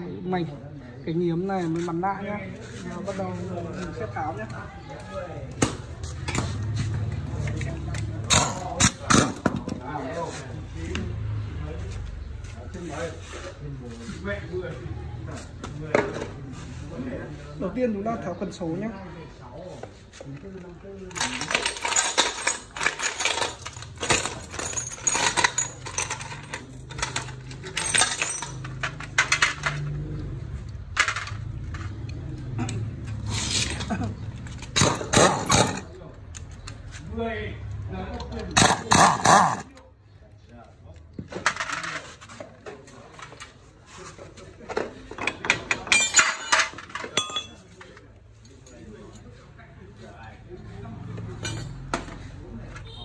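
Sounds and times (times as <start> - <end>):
metal tools clinking: 6.3 - 9.8, 21.0 - 36.9, 44.8 - 49.4, 51.4 - 52.2.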